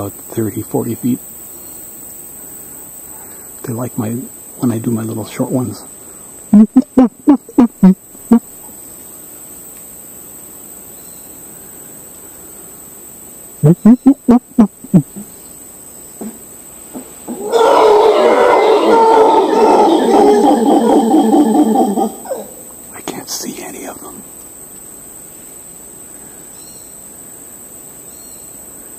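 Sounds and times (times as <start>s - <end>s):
man imitating monkey grunts: 13.6s - 15.3s, 19.5s - 22.6s
howler monkeys howling chorus: 17.0s - 22.8s.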